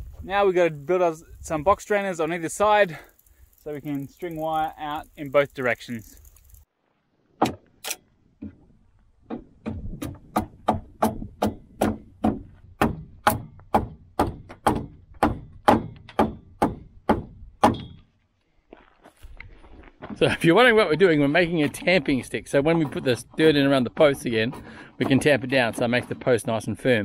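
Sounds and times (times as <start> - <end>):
chopping strikes into wooden pole: 7.4 - 7.6, 9.3 - 18.0.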